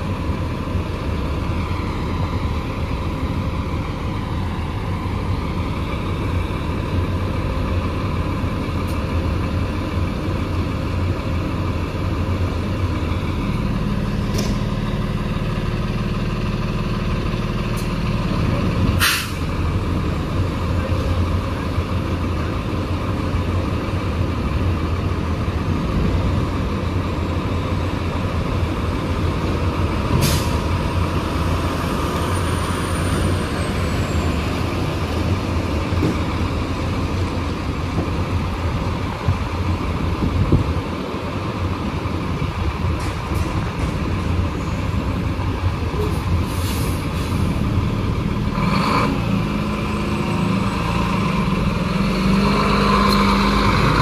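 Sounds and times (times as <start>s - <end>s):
diesel engine idling: 0.0s - 54.0s
air brake hisses: 19.0s - 19.5s, 30.2s - 30.6s, 46.0s - 47.5s.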